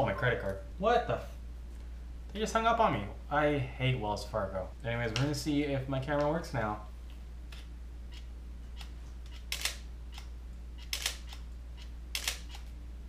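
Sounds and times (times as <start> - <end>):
faint camera clicks: 7.5 - 12.7
camera shutter clacking: 8.8 - 11.4, 12.1 - 12.7.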